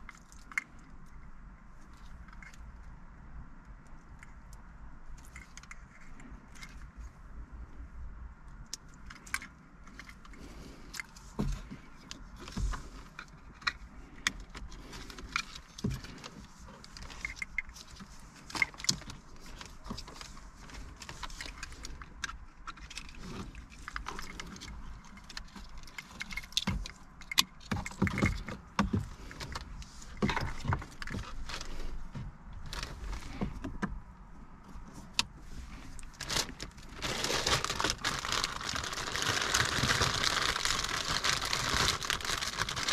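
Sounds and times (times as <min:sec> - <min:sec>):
plastic plugs and cables rattling: 0:03.8 - 0:07.1, 0:08.6 - 0:34.1, 0:34.7 - 0:42.9
plastic bag crinkling: 0:35.7 - 0:42.9.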